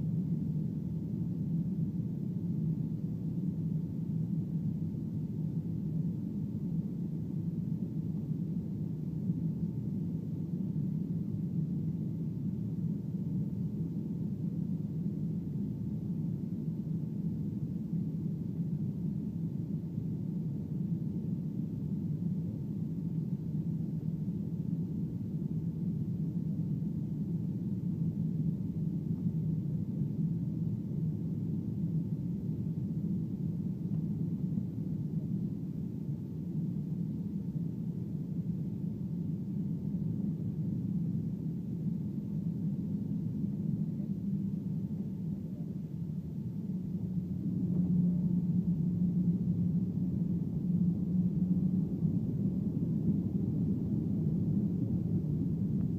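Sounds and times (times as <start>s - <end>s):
jet engine rumble: 27.0s - 55.9s
faint steady high tone: 40.0s - 55.9s.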